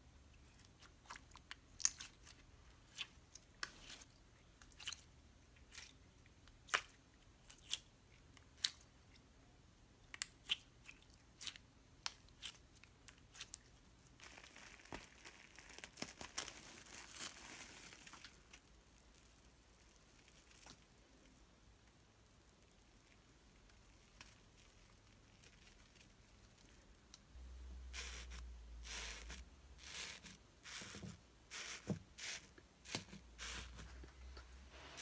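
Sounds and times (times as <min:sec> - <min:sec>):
slime crackling: 0:11.4 - 0:21.3.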